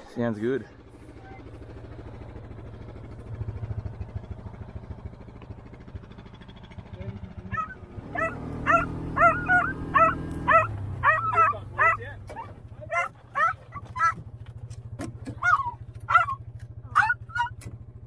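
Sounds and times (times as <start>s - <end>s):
buggy engine running: 0.0s - 18.0s
dogs yelping and whining: 7.5s - 14.2s, 15.3s - 17.6s.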